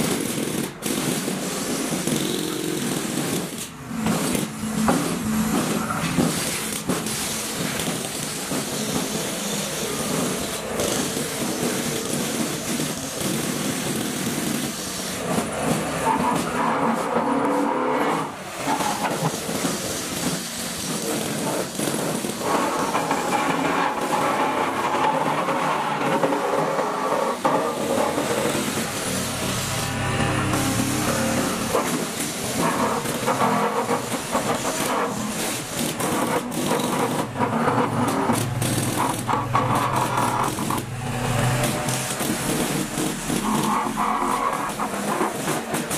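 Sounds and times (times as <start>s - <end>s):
pile-driving machinery: 0.0s - 45.9s
diesel engine running: 27.7s - 33.4s, 36.9s - 45.2s.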